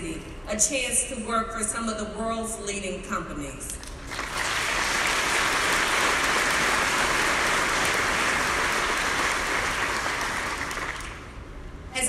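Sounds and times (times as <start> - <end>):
audience applauding: 3.9 - 11.4.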